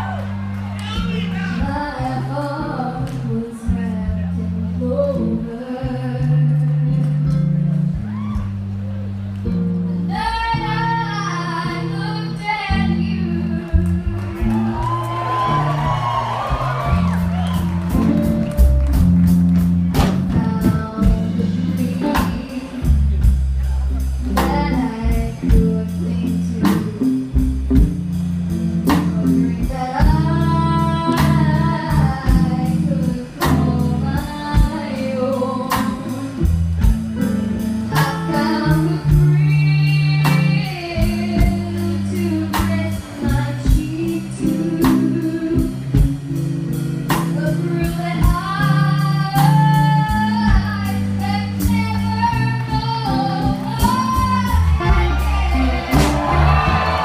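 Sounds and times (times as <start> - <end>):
live blues band: 0.0 - 57.0
woman singing: 1.4 - 7.4, 10.1 - 15.7, 20.2 - 23.4, 24.2 - 27.9, 28.8 - 36.6, 37.6 - 46.1, 47.1 - 56.6
drums slow beat: 13.6 - 57.0.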